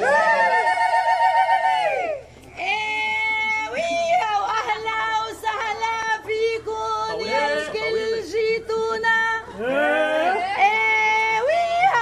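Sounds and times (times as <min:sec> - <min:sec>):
woman singing unaccompanied: 0:02.6 - 0:09.5, 0:10.3 - 0:12.0.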